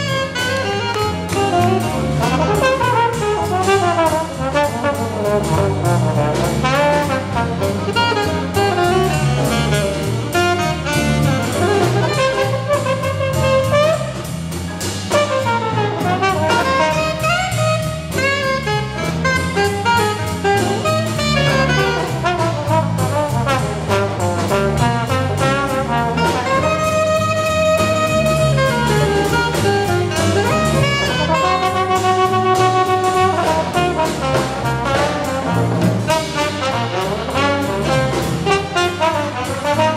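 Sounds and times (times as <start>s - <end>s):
alto saxophone: 0.0s - 39.9s
jazz ensemble playing: 0.0s - 39.9s
trombone: 0.0s - 39.9s.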